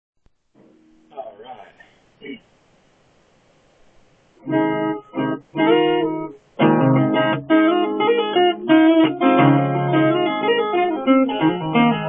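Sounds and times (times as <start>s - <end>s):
acoustic guitar playing: 0.6s - 1.3s, 4.4s - 12.0s.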